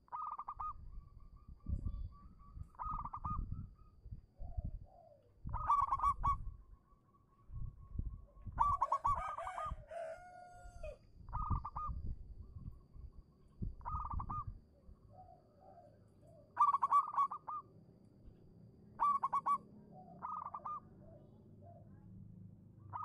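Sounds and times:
dove cooing: 0.0s - 0.8s, 2.7s - 3.7s, 4.4s - 6.4s, 8.6s - 12.0s, 13.8s - 17.7s, 19.0s - 21.9s.

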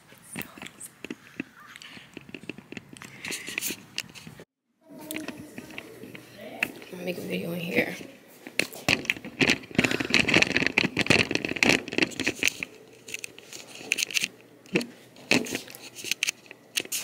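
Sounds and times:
scattered clicks and knocks: 0.4s - 4.4s, 7.8s - 17.0s
camera handling rustling: 0.6s - 4.4s, 8.4s - 17.0s.

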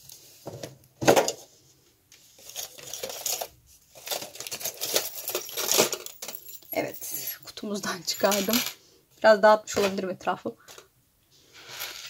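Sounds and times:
metal chain clinking: 2.6s - 8.8s, 11.7s - 12.0s.

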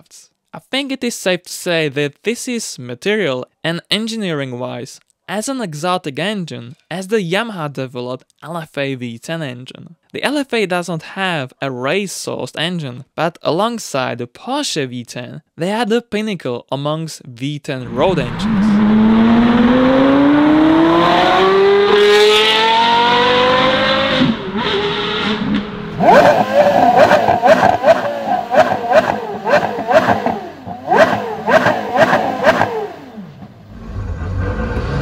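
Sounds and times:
car engine accelerating: 17.8s - 35.0s
car engine revving: 17.9s - 35.0s.

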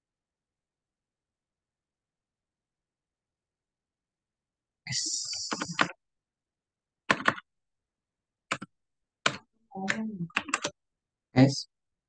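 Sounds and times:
keyboard keys clicking: 7.1s - 7.5s, 8.5s - 10.7s.

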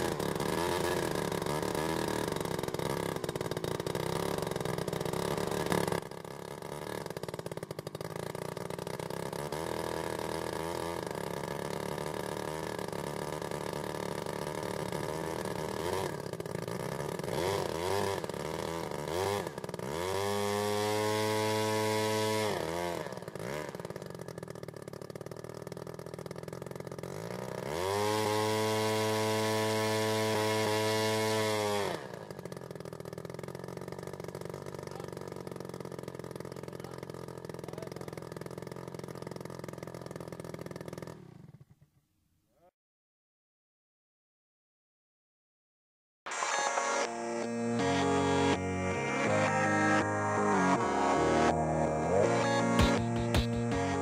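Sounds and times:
model aircraft engine running: 0.0s - 41.6s, 46.4s - 54.0s.

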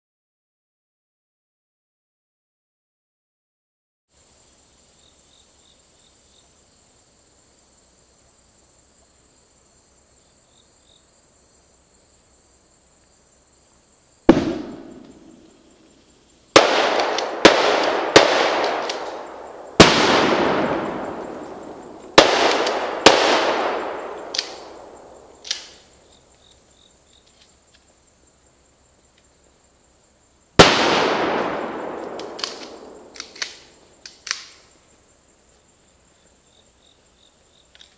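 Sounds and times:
high insect drone: 4.1s - 37.9s
explosive charges detonating: 14.3s - 15.6s.

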